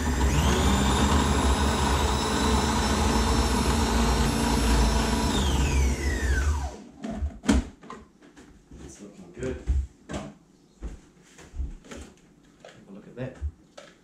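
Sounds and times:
food processor motor whining: 0:00.0 - 0:06.9.

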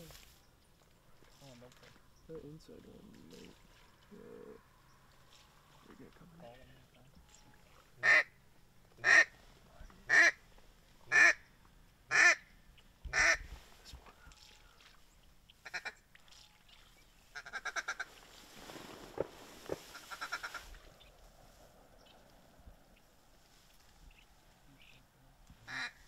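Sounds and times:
duck quacking: 0:08.0 - 0:08.3, 0:09.0 - 0:09.3, 0:10.1 - 0:10.4, 0:11.1 - 0:11.4, 0:12.1 - 0:12.4, 0:15.6 - 0:16.0, 0:19.9 - 0:20.7, 0:25.7 - 0:26.0.

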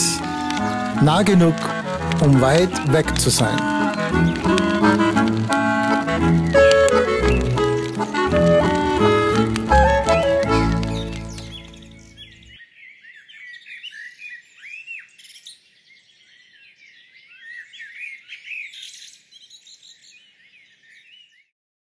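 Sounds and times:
music: 0:00.0 - 0:12.5
small birds chirping: 0:00.0 - 0:21.5.

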